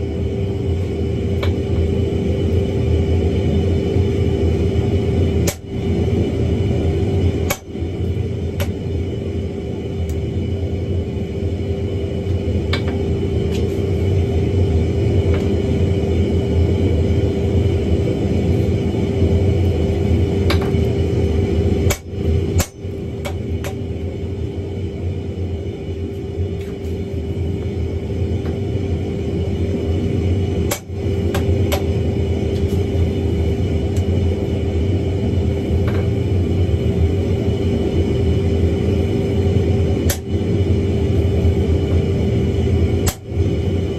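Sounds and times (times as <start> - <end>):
low steady hum: 0.0 - 43.9
hammer striking iron on anvil: 21.9 - 23.8.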